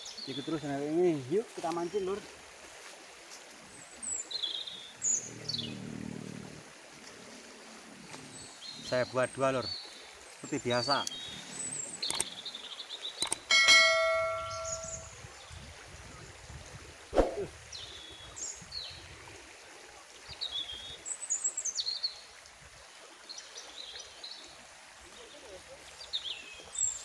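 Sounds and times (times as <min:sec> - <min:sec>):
birds chirping: 0:00.0 - 0:02.3, 0:03.7 - 0:15.5
mouse clicks: 0:12.0 - 0:12.3, 0:13.2 - 0:13.4
notification bell ding: 0:13.5 - 0:15.1.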